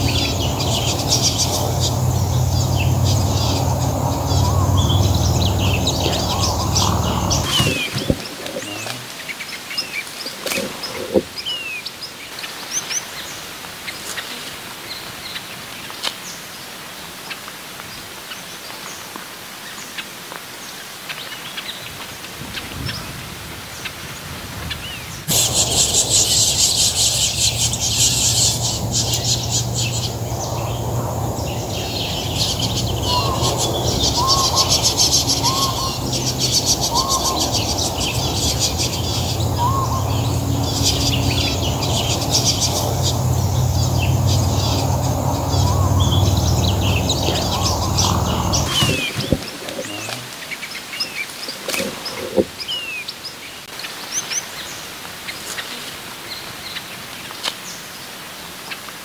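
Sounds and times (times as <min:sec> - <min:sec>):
low rumble: 0:00.0 - 0:08.4, 0:25.3 - 0:49.6
finches chirping: 0:00.0 - 0:11.8, 0:25.3 - 0:53.0
high buzzing chatter: 0:25.3 - 0:50.2.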